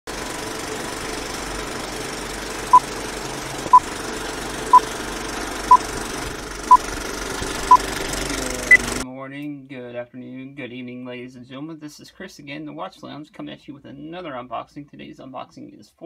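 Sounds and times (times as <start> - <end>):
film projector rattle: 0.1 - 9.0.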